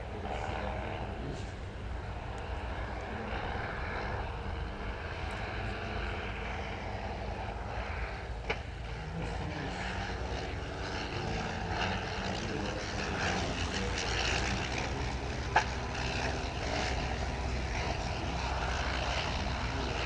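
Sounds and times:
propeller planes droning overhead: 0:00.0 - 0:20.0.

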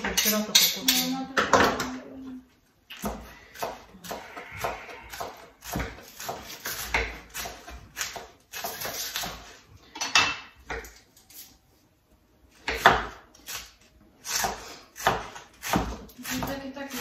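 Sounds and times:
knives chopping on cutting boards: 0:03.0 - 0:11.0, 0:12.6 - 0:17.0.

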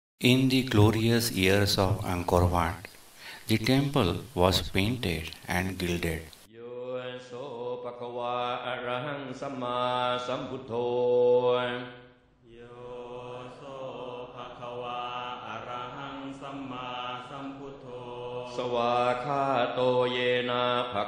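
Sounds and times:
voices chanting in long held notes: 0:06.5 - 0:21.0.

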